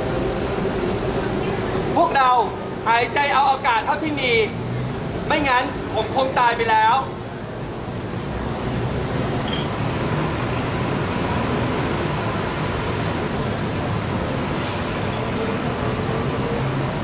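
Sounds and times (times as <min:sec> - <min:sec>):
road traffic noise: 0:00.0 - 0:17.0
short hiss: 0:14.6 - 0:15.1.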